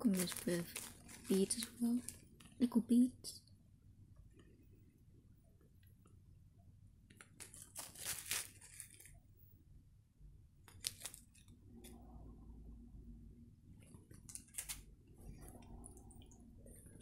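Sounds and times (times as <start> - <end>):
plastic bag crinkling: 0.0 - 2.7, 7.2 - 9.2, 10.7 - 11.5.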